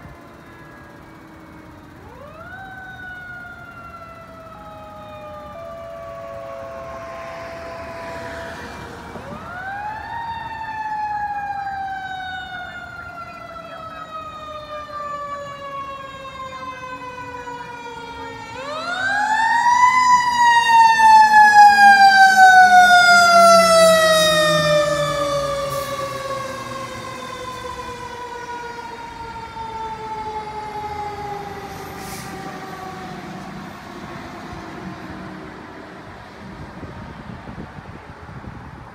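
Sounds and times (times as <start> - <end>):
fire engine siren: 0.0 - 38.9.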